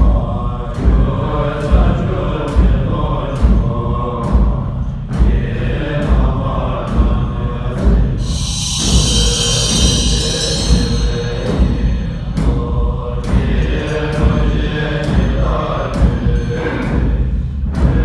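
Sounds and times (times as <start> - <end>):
percussion strikes: 0.0 - 18.0
ritual chanting: 0.0 - 18.0
ringing cymbal crash: 8.2 - 13.5.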